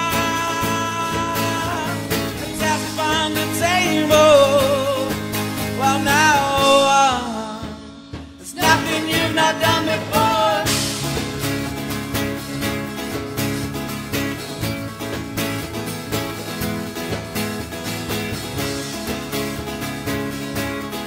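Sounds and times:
man singing: 0.0s - 11.0s
guitar: 0.0s - 21.0s
live band playing: 0.0s - 21.0s.

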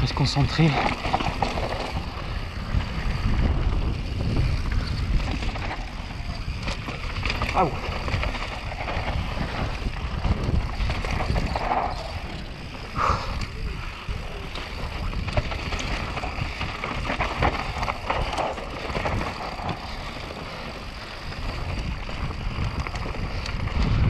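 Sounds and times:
tyres on gravel: 0.0s - 24.0s
wind rushing over microphone: 0.0s - 24.0s.

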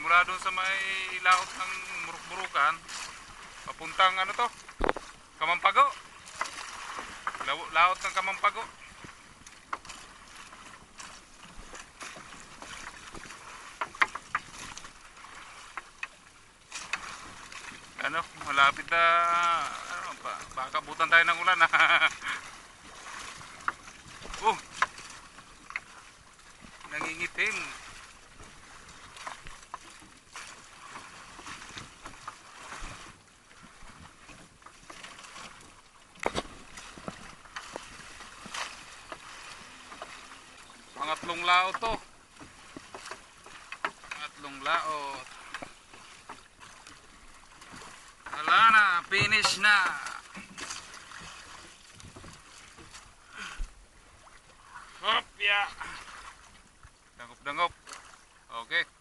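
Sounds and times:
water splashing against hull: 0.0s - 59.0s
loud knock against boat: 4.8s - 5.1s.

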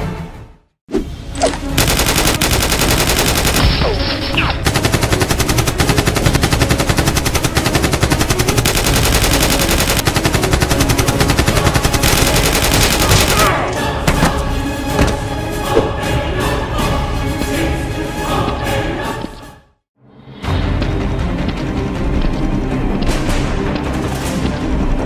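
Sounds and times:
rapid machine-gun fire: 1.8s - 13.6s.

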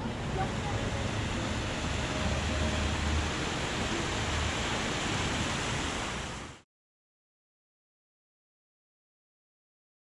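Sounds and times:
waterfall splashing into pool: 1.0s - 6.6s.

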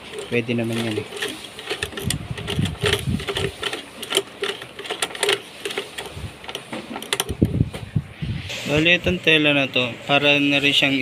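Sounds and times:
sewing machine clacking: 0.0s - 7.5s.

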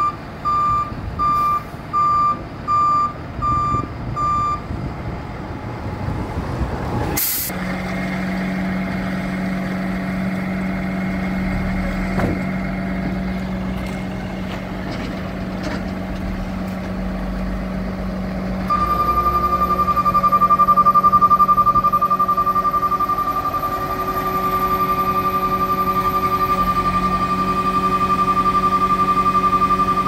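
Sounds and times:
diesel engine idling: 0.0s - 30.0s
air brakes hissing: 7.2s - 7.6s
fast high beeping alarm: 18.7s - 30.0s.

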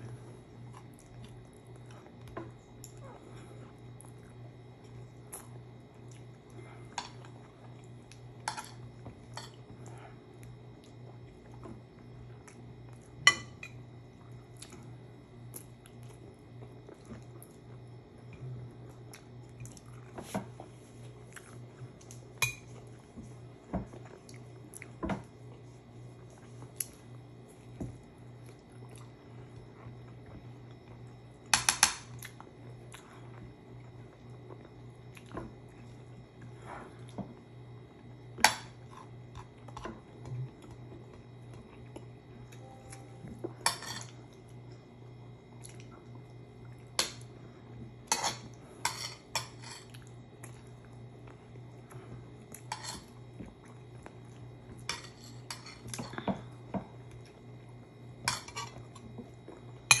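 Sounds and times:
spoons clinking against bowls: 43.6s - 44.1s, 54.9s - 56.1s.

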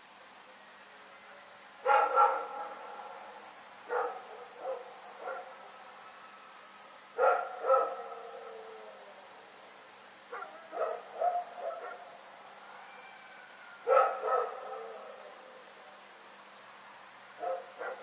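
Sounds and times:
dog barking: 1.8s - 2.8s, 3.9s - 5.6s, 7.2s - 8.3s, 10.3s - 12.1s, 13.9s - 15.0s, 17.4s - 18.0s.

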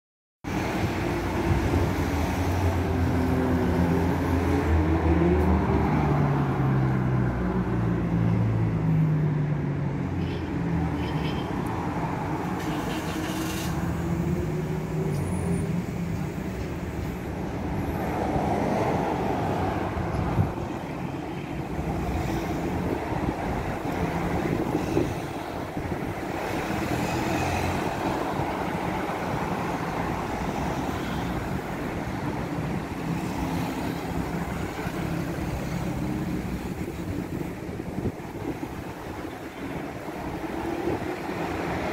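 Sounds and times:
road traffic passing: 0.4s - 41.9s.

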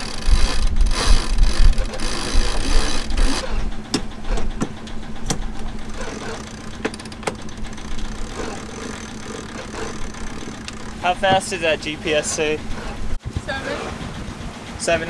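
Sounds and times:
winch clicks: 0.0s - 11.2s
steady low hum: 0.0s - 15.0s.

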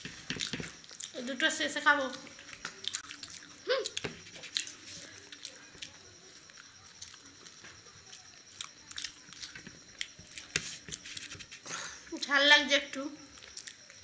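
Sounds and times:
people biting and chewing: 0.0s - 1.2s, 2.1s - 11.8s.

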